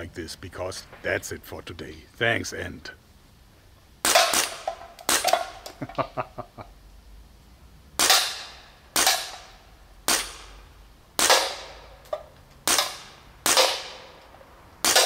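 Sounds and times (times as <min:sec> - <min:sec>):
air pistol shots: 0:04.0 - 0:05.7, 0:08.0 - 0:10.6, 0:11.2 - 0:14.2, 0:14.8 - 0:15.0.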